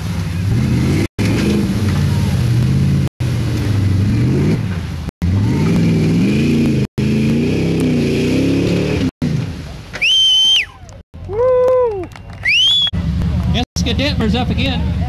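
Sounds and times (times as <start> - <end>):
truck engine revving hard: 0.0 - 9.6.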